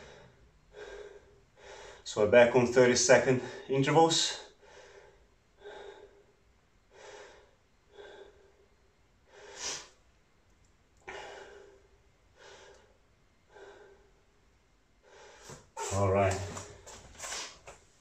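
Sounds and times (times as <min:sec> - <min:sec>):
man breathing hard: 0:00.0 - 0:02.1, 0:04.5 - 0:10.0, 0:11.0 - 0:14.4, 0:15.0 - 0:15.8.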